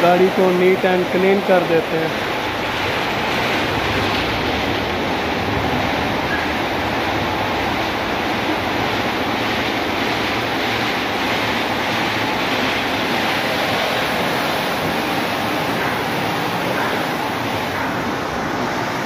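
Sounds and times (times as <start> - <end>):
water spraying onto car: 0.0 - 19.0.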